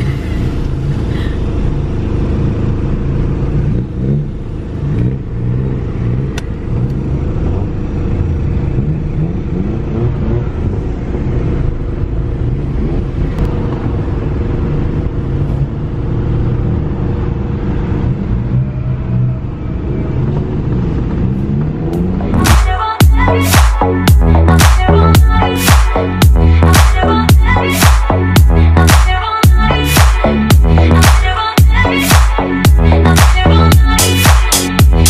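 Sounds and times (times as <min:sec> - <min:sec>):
car engines idling and revving: 0:00.0 - 0:35.0.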